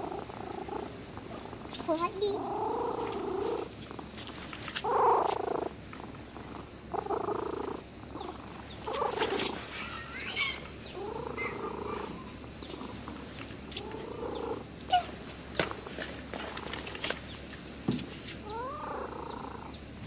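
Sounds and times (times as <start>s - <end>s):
cat purring: 0.0s - 4.1s, 4.9s - 9.6s, 11.0s - 14.7s, 18.6s - 19.7s.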